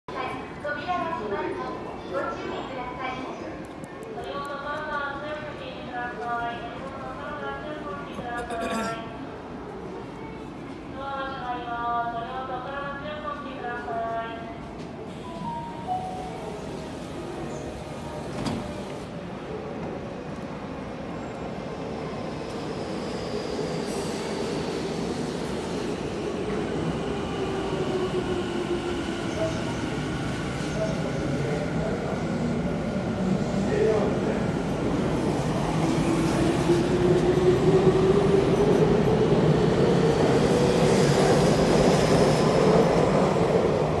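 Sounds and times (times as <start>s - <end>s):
train rumbling on rails: 13.1s - 44.0s
train doors thumping shut: 18.2s - 19.0s.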